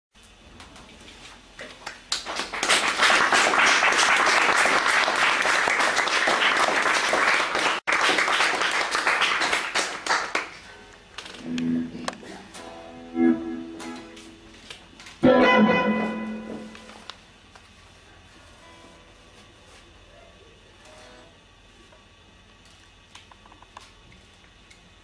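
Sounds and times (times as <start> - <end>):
small audience applauding: 1.6 - 10.8
electric guitar playing: 11.2 - 14.6, 15.2 - 17.0.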